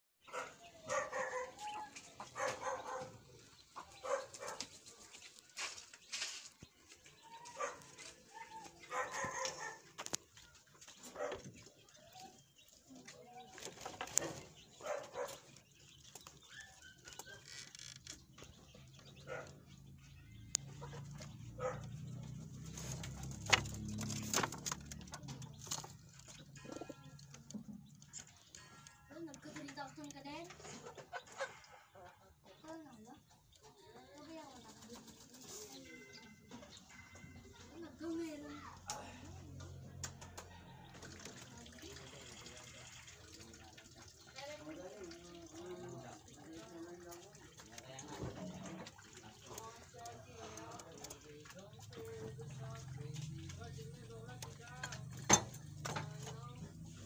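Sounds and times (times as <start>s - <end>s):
dog barking: 0.3s - 4.8s, 7.3s - 10.0s, 11.0s - 11.6s, 14.2s - 15.6s, 19.2s - 19.8s, 20.7s - 22.3s, 31.2s - 32.3s.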